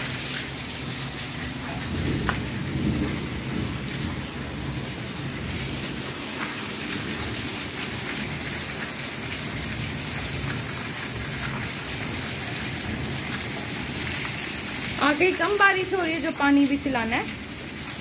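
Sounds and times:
heavy rain on concrete: 0.0 - 18.0.

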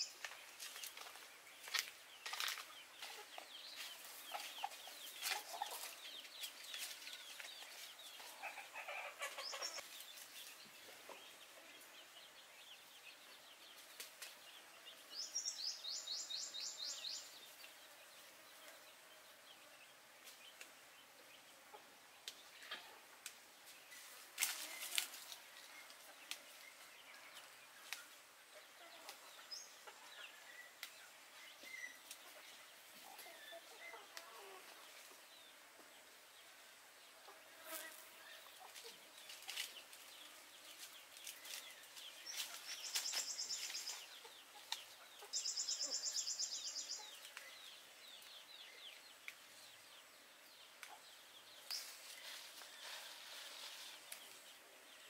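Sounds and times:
chickens clucking: 2.7 - 12.0, 21.5 - 23.2, 24.6 - 35.2, 38.2 - 40.0, 40.9 - 47.4
leaves snapping and rustling: 24.4 - 25.5, 38.8 - 40.1, 40.8 - 44.0.

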